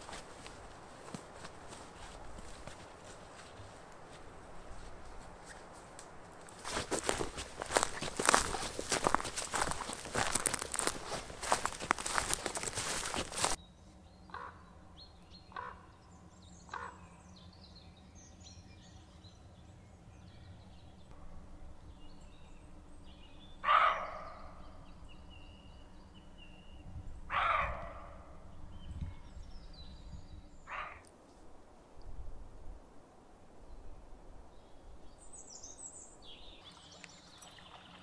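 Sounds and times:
songbirds chirping faintly: 0:00.0 - 0:38.0
crow cawing: 0:14.3 - 0:14.7, 0:15.5 - 0:15.9, 0:16.7 - 0:17.1, 0:23.6 - 0:24.6, 0:27.3 - 0:28.4, 0:30.7 - 0:31.1.

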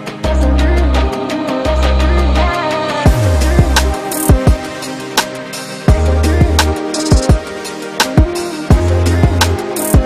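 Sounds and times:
instrumental background music: 0:00.0 - 0:10.0
deep bass notes: 0:00.2 - 0:04.7, 0:05.9 - 0:06.8, 0:08.7 - 0:09.6.

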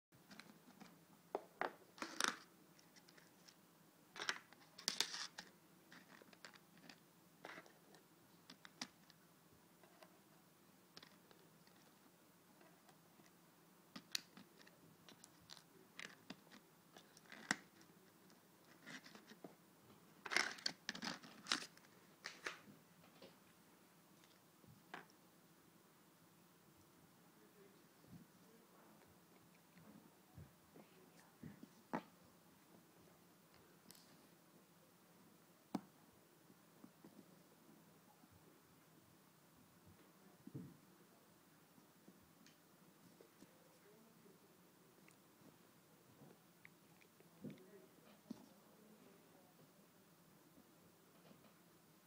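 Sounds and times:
plastic nails crinkling and clicking: 0:01.6 - 0:03.6, 0:04.2 - 0:09.2, 0:12.8 - 0:19.4, 0:20.2 - 0:23.3.

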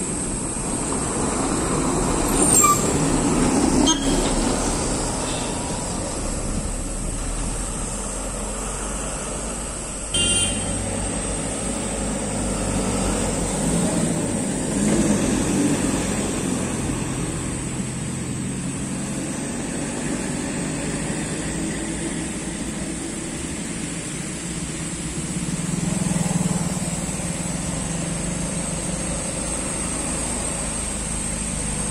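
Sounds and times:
diesel truck engines rumbling: 0:00.0 - 0:31.9
short horn beep: 0:10.1 - 0:10.8.

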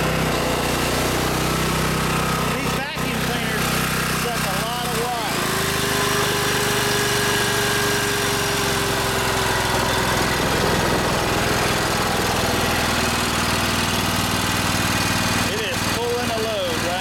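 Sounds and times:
generator running: 0:00.0 - 0:17.0
vacuum cleaner motor whine: 0:00.0 - 0:17.0.

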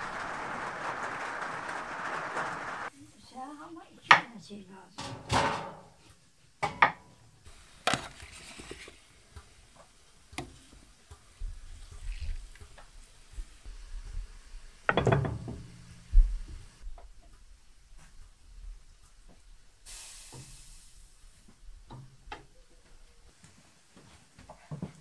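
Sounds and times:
metal ladle knocking on pot: 0:14.9 - 0:15.8.

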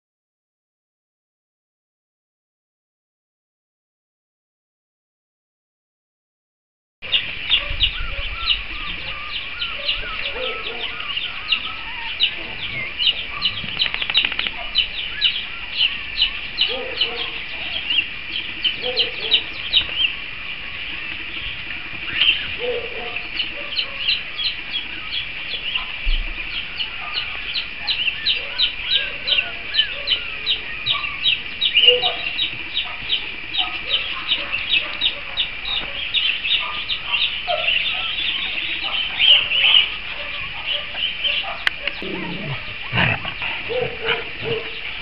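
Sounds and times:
dogs yipping and whining: 0:07.5 - 0:14.9, 0:16.6 - 0:17.9, 0:18.7 - 0:19.5, 0:22.3 - 0:24.2, 0:28.2 - 0:45.0
puppies squealing: 0:28.2 - 0:33.0, 0:33.6 - 0:45.0.

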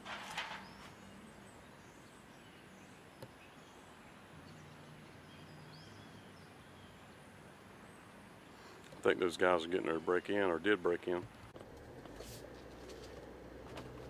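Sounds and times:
faint high bird chirps: 0:00.6 - 0:07.2.

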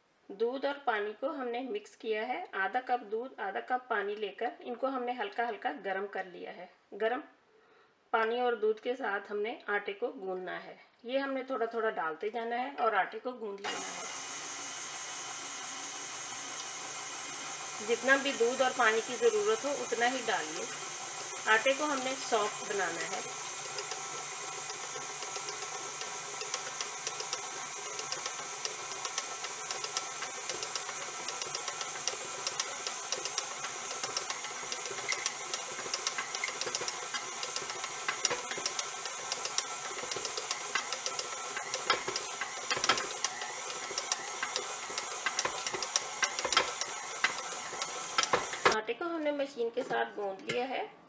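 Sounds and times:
stand mixer motor whining: 0:13.6 - 0:48.8.

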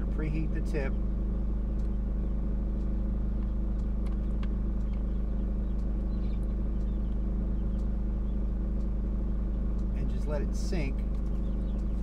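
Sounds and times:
faint ticks: 0:01.7 - 0:02.0, 0:02.7 - 0:12.0.

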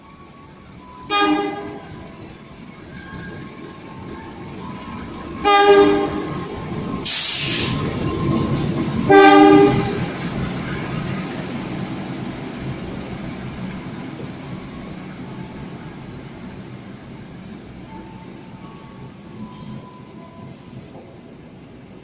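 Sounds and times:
locomotive horn blasts: 0:01.1 - 0:02.0, 0:05.4 - 0:06.4, 0:09.1 - 0:10.1
brief hiss: 0:07.1 - 0:07.9.

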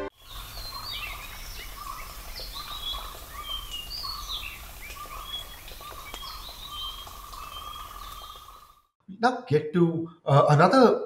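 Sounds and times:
low repeated bird call: 0:00.0 - 0:08.9
forest birds whistling and chirping: 0:00.1 - 0:08.8.

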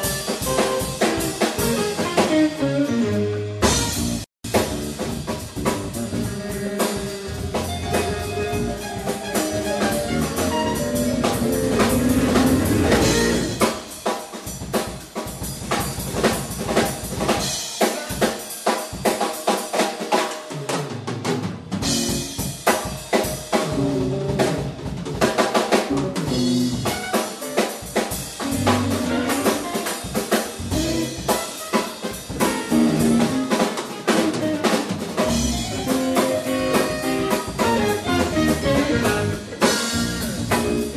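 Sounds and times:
electric guitar: 0:00.0 - 0:04.2, 0:04.9 - 0:13.8, 0:25.8 - 0:40.9
bass guitar: 0:00.0 - 0:13.8, 0:23.5 - 0:40.9
drum kit: 0:00.0 - 0:40.9.

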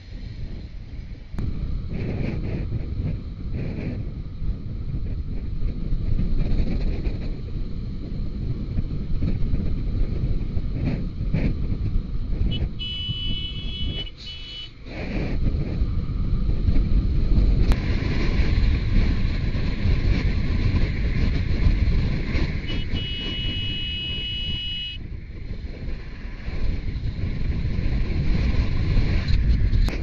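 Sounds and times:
wind buffeting microphone: 0:00.0 - 0:30.0
high steady tone: 0:22.7 - 0:25.0.

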